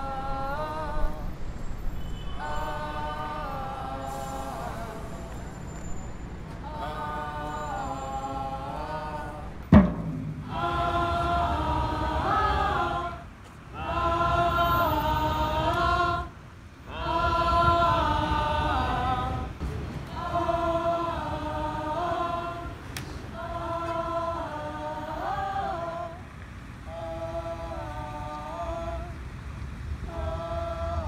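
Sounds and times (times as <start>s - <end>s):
low steady rumble: 0.0s - 23.4s
choir singing held chords: 0.0s - 31.0s.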